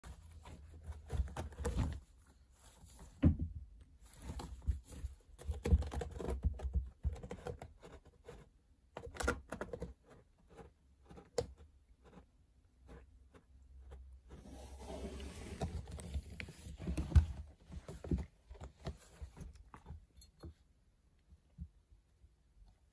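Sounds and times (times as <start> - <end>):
cat scratching woven scratcher: 4.0 - 20.1.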